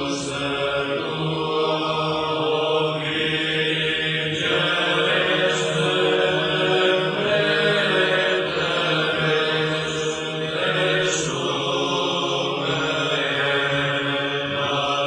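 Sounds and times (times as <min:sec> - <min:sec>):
male choir chanting: 0:00.0 - 0:15.0.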